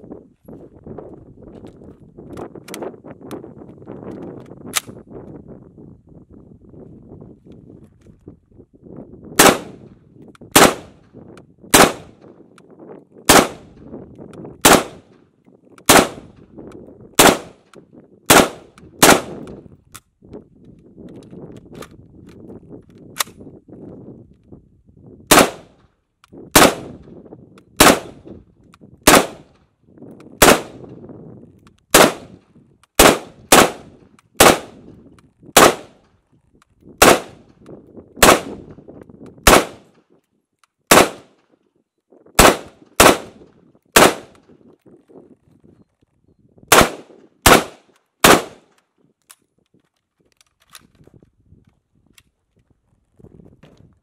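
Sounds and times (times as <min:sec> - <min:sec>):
rifle single shots: 0:09.4 - 0:09.9, 0:10.5 - 0:11.0, 0:11.7 - 0:12.3, 0:13.3 - 0:13.7, 0:14.6 - 0:15.1, 0:15.9 - 0:16.3, 0:17.2 - 0:17.6, 0:18.3 - 0:19.4, 0:25.3 - 0:25.7, 0:26.5 - 0:27.0, 0:27.8 - 0:28.2, 0:29.0 - 0:29.5, 0:30.4 - 0:31.0, 0:31.9 - 0:32.4, 0:33.0 - 0:34.8, 0:35.6 - 0:36.0, 0:37.0 - 0:37.4, 0:38.2 - 0:38.7, 0:39.4 - 0:39.9, 0:40.9 - 0:41.4, 0:42.4 - 0:44.4, 0:46.7 - 0:48.7.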